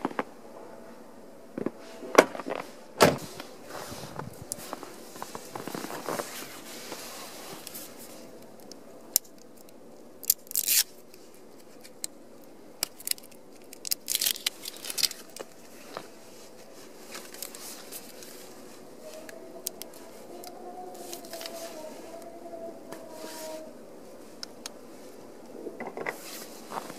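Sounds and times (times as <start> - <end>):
faint wavering hum: 0.0 - 26.9
nylon jacket sleeve rustling: 1.7 - 8.4, 15.2 - 19.3, 20.0 - 25.2, 26.2 - 26.9.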